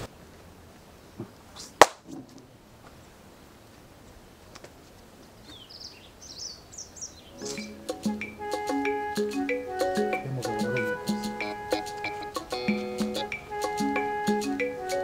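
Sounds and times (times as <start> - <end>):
birds chirping: 5.3 - 13.8.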